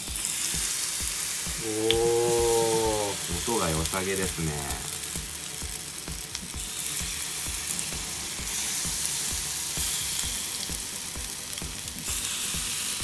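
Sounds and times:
batter sizzling in hot oil: 0:00.0 - 0:13.0.

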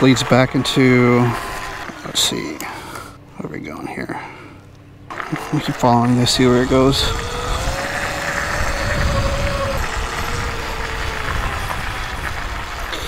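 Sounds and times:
electric motor whine: 0:00.0 - 0:03.3, 0:05.0 - 0:13.0
tyre and wind rumble: 0:05.1 - 0:13.0.

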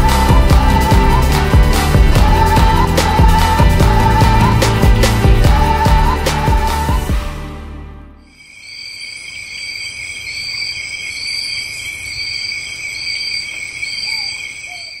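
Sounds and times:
crickets trilling: 0:08.3 - 0:15.0
pulsing cricket chirp: 0:08.3 - 0:15.0.

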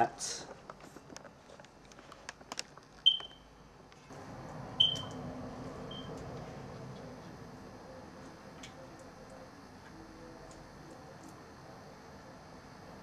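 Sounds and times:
steady low hum: 0:00.0 - 0:13.0
short high-pitched beeps: 0:03.1 - 0:03.5, 0:04.8 - 0:05.1.

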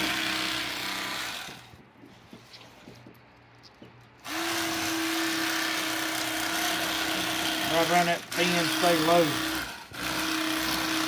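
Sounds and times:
electric knife motor buzzing: 0:00.0 - 0:01.8, 0:04.2 - 0:11.0.

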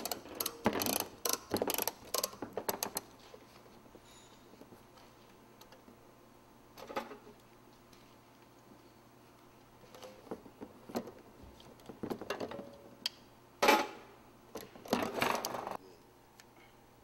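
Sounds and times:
strapping tool ratcheting clicks: 0:00.0 - 0:03.0.

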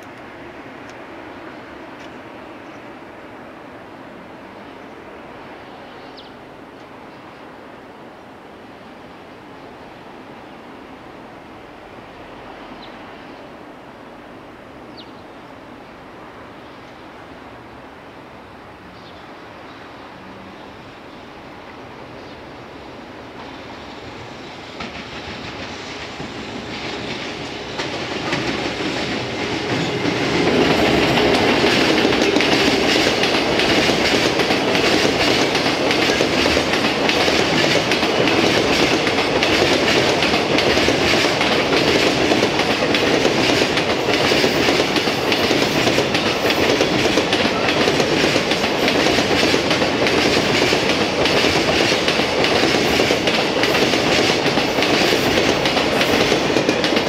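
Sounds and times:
electric locomotive passing: 0:00.0 - 0:57.0.

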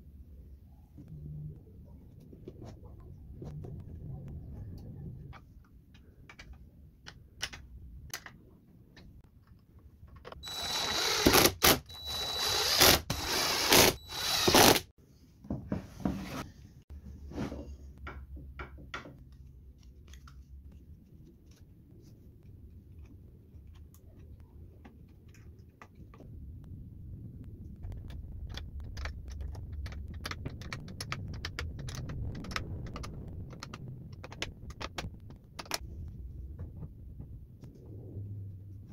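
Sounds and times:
clicks and knocks of parts handled: 0:05.4 - 0:10.4
drill driving screws: 0:10.4 - 0:14.9.

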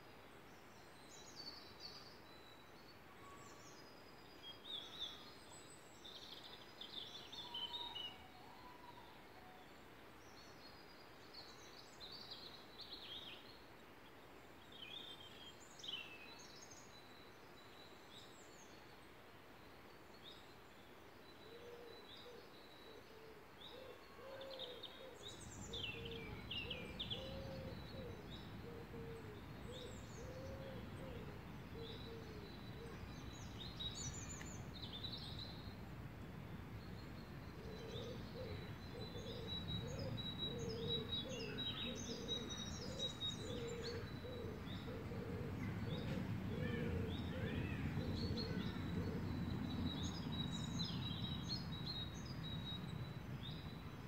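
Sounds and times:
small birds chirping and trilling: 0:24.4 - 0:54.0.

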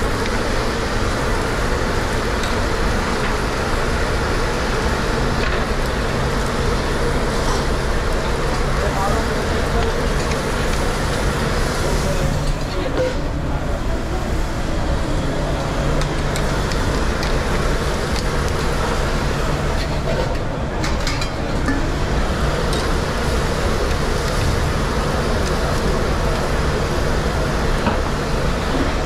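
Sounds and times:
extraction hood roaring: 0:00.0 - 0:29.0
utensils clinking: 0:19.8 - 0:21.9.

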